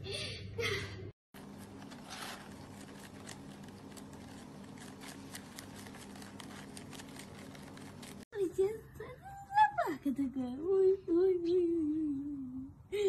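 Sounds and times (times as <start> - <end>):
rabbit chewing lettuce: 1.4 - 8.4.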